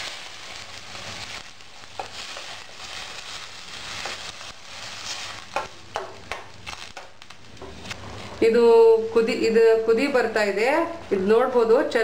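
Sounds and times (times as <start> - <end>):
water hissing in hot pot: 0.0 - 5.5.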